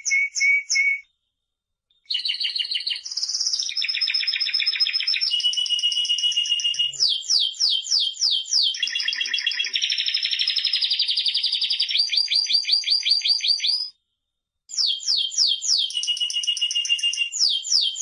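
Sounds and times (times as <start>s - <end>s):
canary singing trills: 2.1s - 14.0s, 14.7s - 18.0s.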